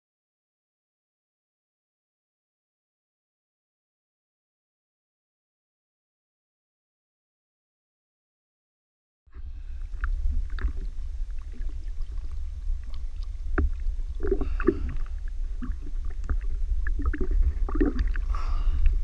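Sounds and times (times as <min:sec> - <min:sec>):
low rumble: 0:09.3 - 0:19.0
water lapping and splashing: 0:09.4 - 0:19.0.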